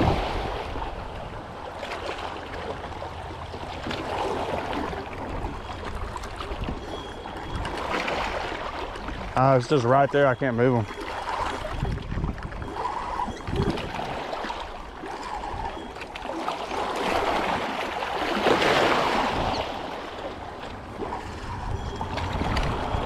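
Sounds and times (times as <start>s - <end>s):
waves lapping against rocks: 0.0s - 23.0s.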